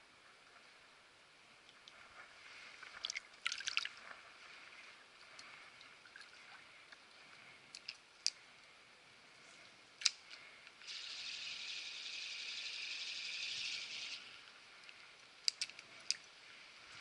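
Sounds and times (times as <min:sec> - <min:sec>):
creek water flowing: 0:00.1 - 0:17.0
water hissing: 0:10.8 - 0:14.4
sharp clicks: 0:14.8 - 0:16.2.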